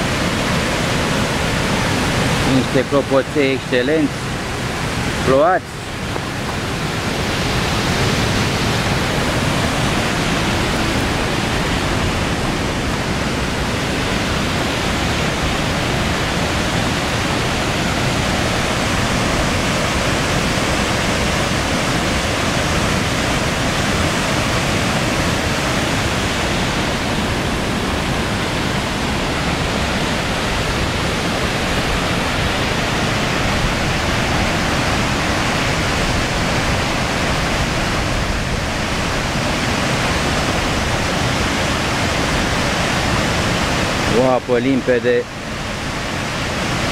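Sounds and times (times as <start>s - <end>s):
river rushing over rocks: 0.0s - 46.9s.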